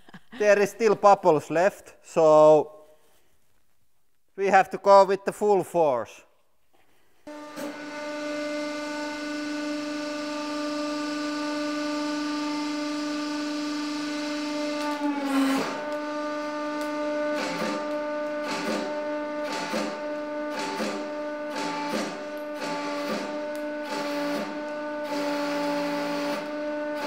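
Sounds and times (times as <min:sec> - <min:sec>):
hydraulic press whine: 0:07.3 - 0:27.0.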